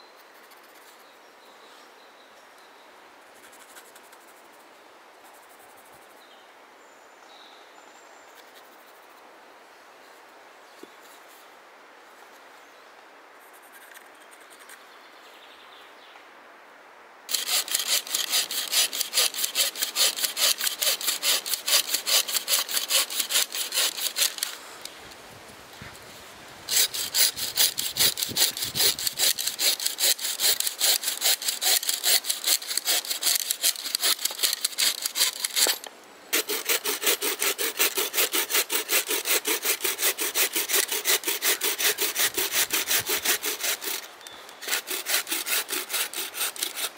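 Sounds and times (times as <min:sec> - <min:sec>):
bow saw cutting wood: 0:17.3 - 0:24.6, 0:26.7 - 0:46.9.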